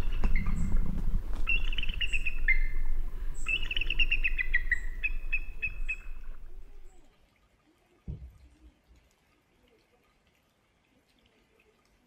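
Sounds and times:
eagle chattering call: 0.0s - 7.0s
low rumble: 0.0s - 7.1s.

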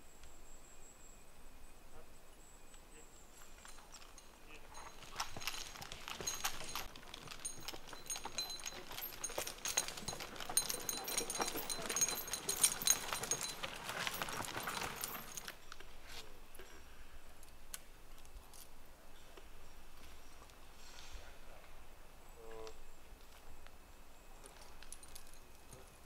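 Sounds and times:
metal chain rattling and clinking: 3.3s - 15.8s, 24.4s - 26.0s.

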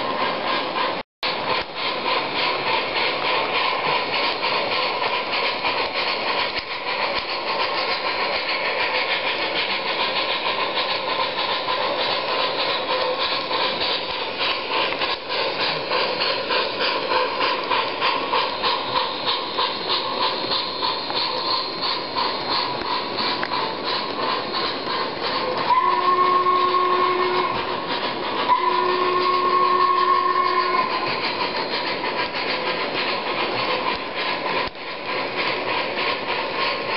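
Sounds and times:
model train steam chuff: 0.0s - 36.9s
model train wheels and motor: 0.0s - 36.9s
model train steam whistle: 25.6s - 27.7s, 28.4s - 31.1s.

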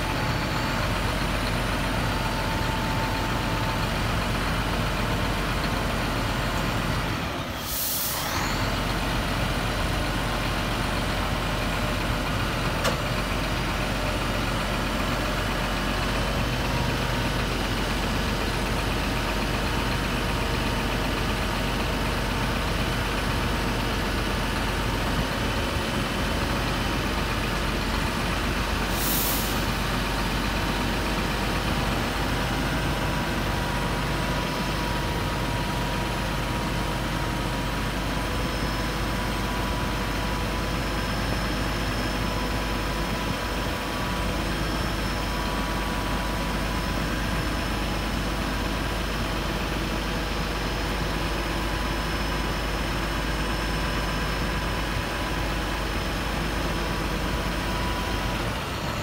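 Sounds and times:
diesel truck engine idling: 0.0s - 59.0s
air release hiss: 7.6s - 8.4s, 28.9s - 29.7s.

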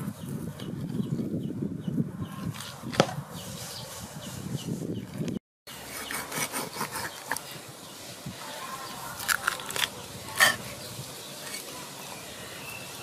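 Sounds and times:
knife crunching through fish: 9.2s - 10.6s.

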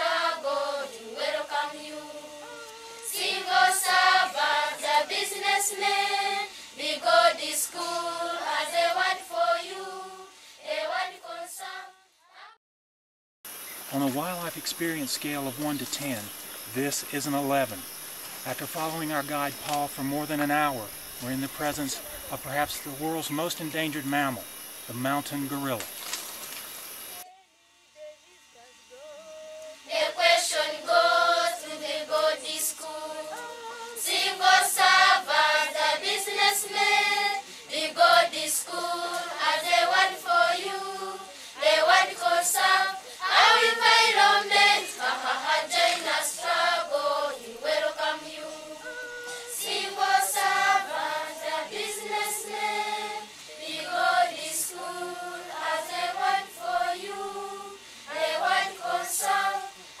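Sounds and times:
children's choir singing: 0.0s - 12.6s, 29.8s - 60.0s.

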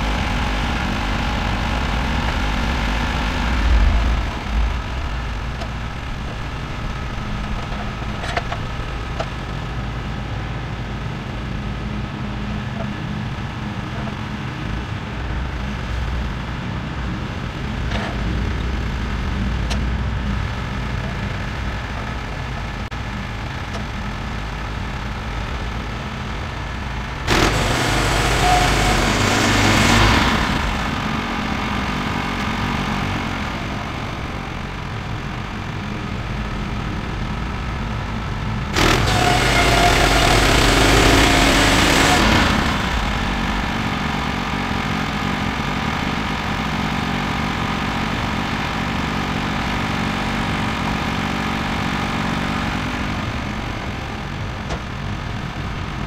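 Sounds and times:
loud rushing noise: 0.0s - 7.4s, 26.5s - 35.6s, 38.6s - 45.2s
gas engine idling: 0.0s - 56.0s.

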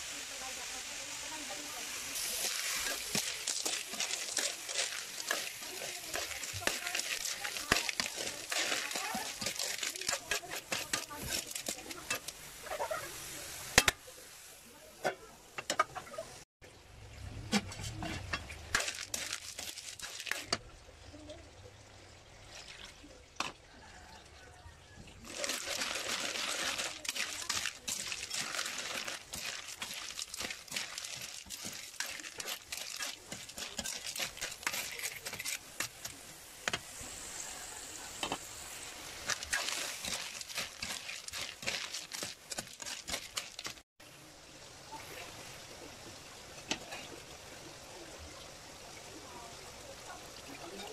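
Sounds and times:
sizzling hiss in pan: 0.0s - 16.4s, 25.2s - 50.9s
metal ladle scraping in wok: 2.1s - 13.0s, 25.2s - 36.2s, 38.3s - 43.8s.

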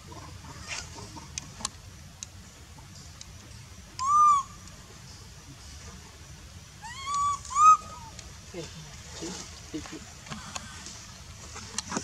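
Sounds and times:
macaque coo calls: 4.0s - 4.5s, 6.8s - 8.2s.

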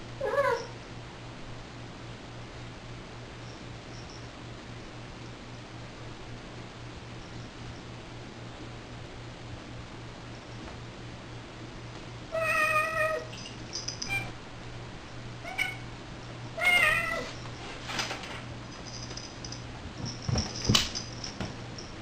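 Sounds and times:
cats meowing: 12.3s - 13.3s, 15.4s - 15.9s, 16.6s - 17.4s
cats thumping on wooden floor: 19.8s - 21.6s.

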